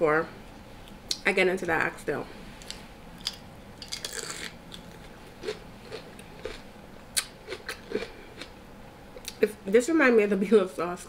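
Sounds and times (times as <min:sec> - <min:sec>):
chewing mouth sounds: 0:02.6 - 0:08.5.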